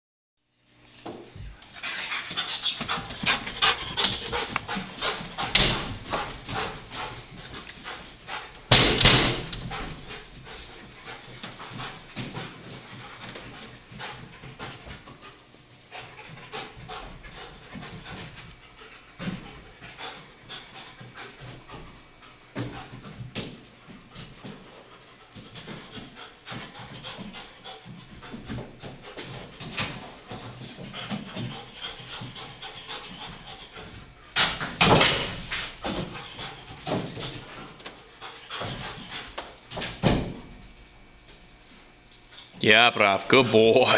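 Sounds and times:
dog panting hard: 1.6s - 40.0s
loud knocks: 8.7s - 9.6s.

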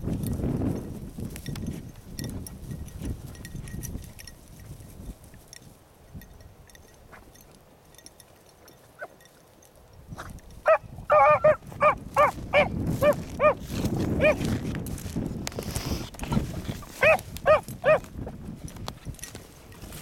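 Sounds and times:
wind rumble on microphone: 0.0s - 8.3s, 9.2s - 20.0s
puppies barking: 10.7s - 13.6s, 17.0s - 18.0s.

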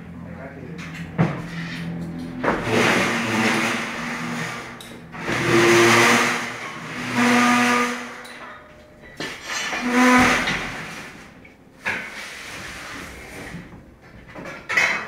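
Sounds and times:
loud rushing noise: 2.4s - 8.2s.

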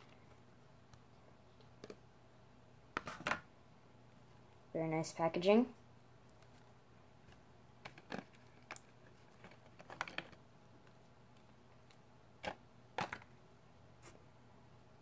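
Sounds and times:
small objects clicking and tapping: 7.8s - 13.3s.

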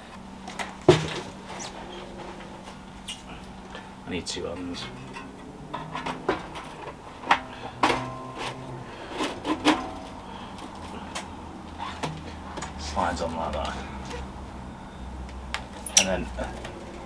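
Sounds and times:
metal pipes knocking and clinking: 4.4s - 12.8s, 15.8s - 16.8s.

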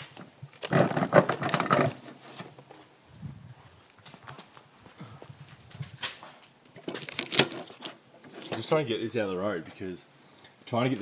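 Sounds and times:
hard objects clattering and knocking: 0.2s - 2.6s.

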